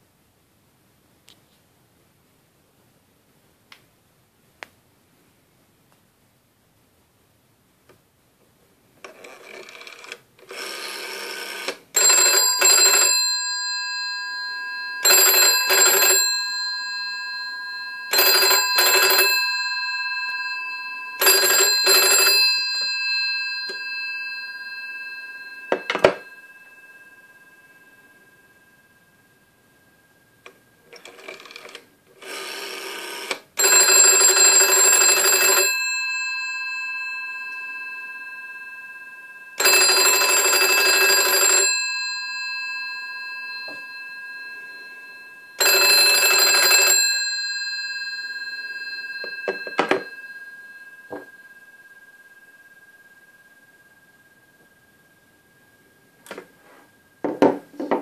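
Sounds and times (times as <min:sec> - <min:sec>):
telephone bell ringing: 0:09.1 - 0:55.2.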